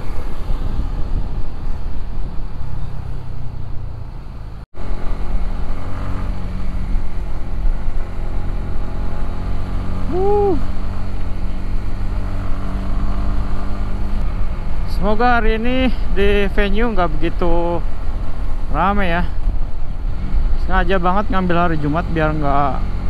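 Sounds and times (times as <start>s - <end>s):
motorcycle engine running: 0.0s - 16.6s.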